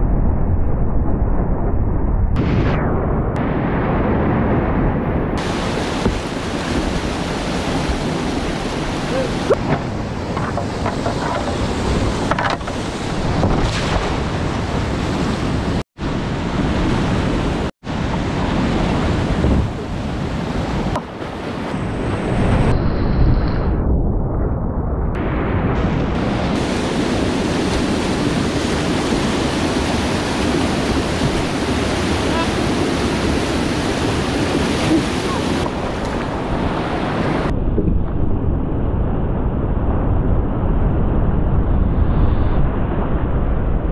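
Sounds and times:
wind buffeting microphone: 0:00.0 - 0:43.9
whitewater rapids rushing: 0:05.4 - 0:15.8, 0:26.6 - 0:37.5.

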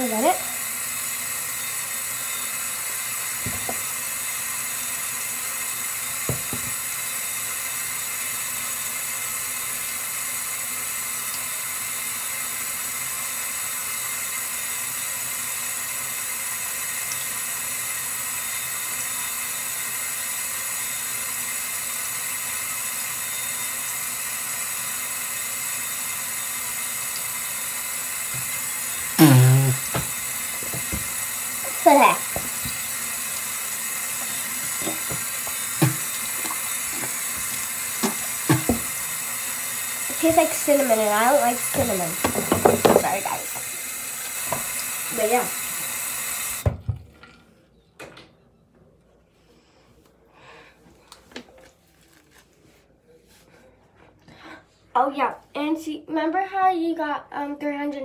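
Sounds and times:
steady hiss: 0:21.3 - 0:46.6
short vocal sound: 0:29.2 - 0:30.0.

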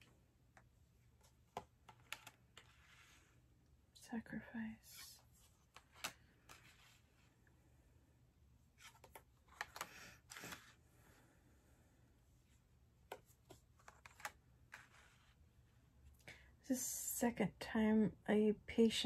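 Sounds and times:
playing cards being handled: 0:00.0 - 0:03.4, 0:04.9 - 0:07.4, 0:08.7 - 0:10.8, 0:13.0 - 0:15.4.

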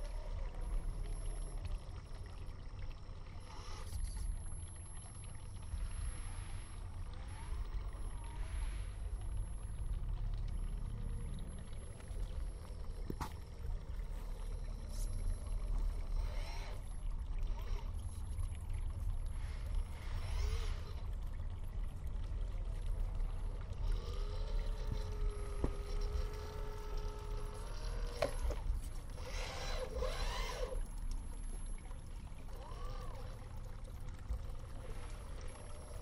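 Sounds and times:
small electric motor whining: 0:03.4 - 0:04.4, 0:11.0 - 0:18.0, 0:19.4 - 0:21.1, 0:23.7 - 0:31.7, 0:32.4 - 0:33.6.

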